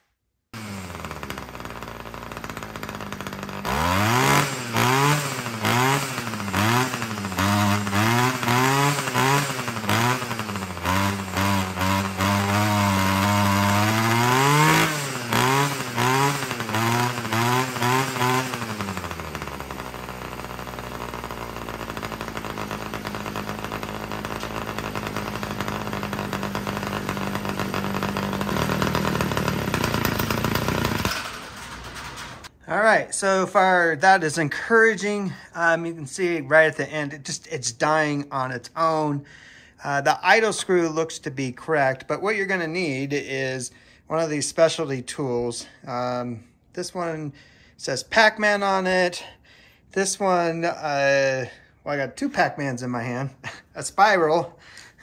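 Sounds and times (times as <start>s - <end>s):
string trimmer engine revving: 0.5s - 32.6s, 53.4s - 55.0s.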